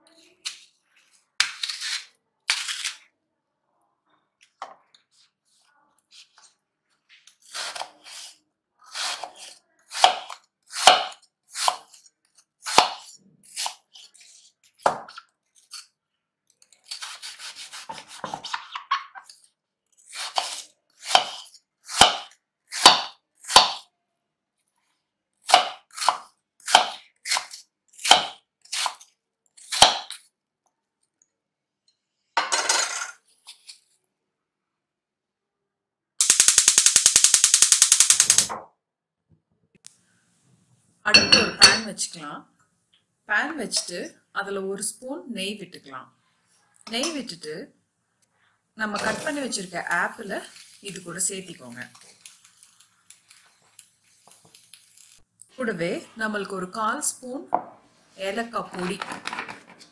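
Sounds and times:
knife chopping on wooden board: 0:22.0 - 0:23.8.

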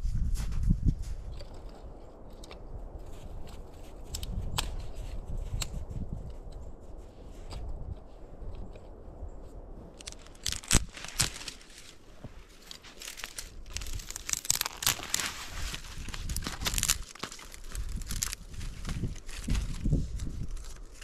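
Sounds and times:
sharp cracks: 0:09.9 - 0:12.0, 0:12.6 - 0:18.4
dry crinkling and crunching: 0:09.9 - 0:21.0.

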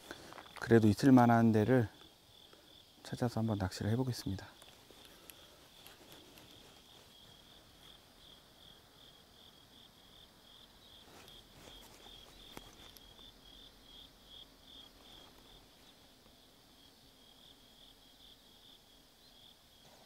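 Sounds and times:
faint insect chirping: 0:00.0 - 0:20.0.

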